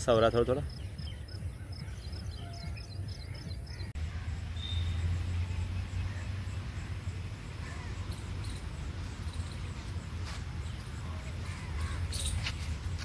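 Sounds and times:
bird chirps: 0.6 - 9.8, 10.6 - 12.6.

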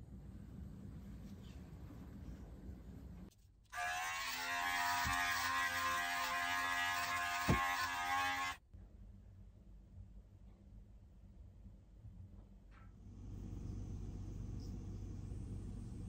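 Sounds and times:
hair clipper buzzing: 3.8 - 8.6.

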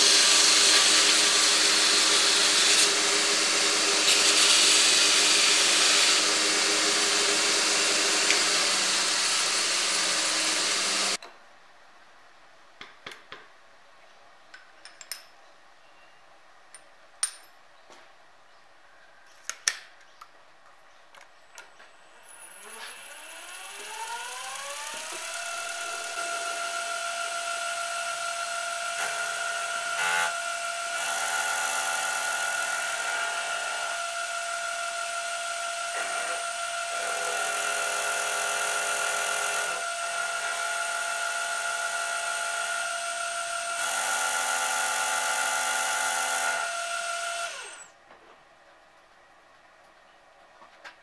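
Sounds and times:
face mill cutting metal: 0.0 - 11.2, 22.4 - 47.8
milling machine spindle whine: 0.1 - 11.2, 22.4 - 47.8.

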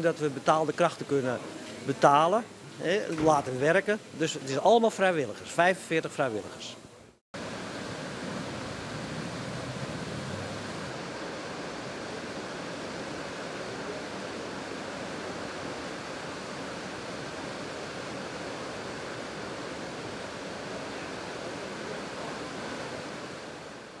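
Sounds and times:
churning water rushing: 7.4 - 24.0.

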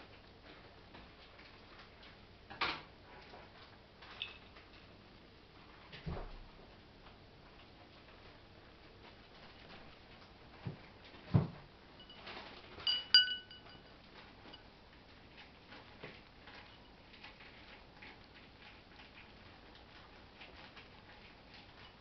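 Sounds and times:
ceramic bowl clinking: 12.0 - 14.6.

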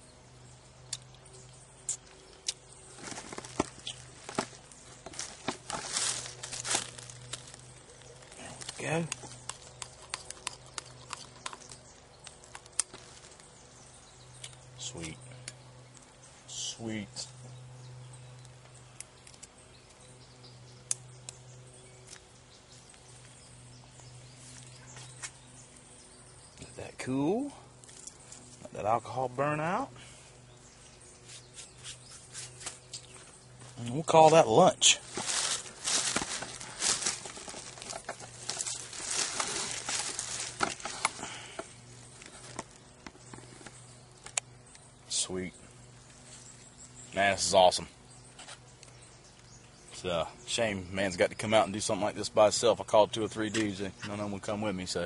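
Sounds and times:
camp cooking gear clicking: 1.9 - 13.1, 35.1 - 44.9.

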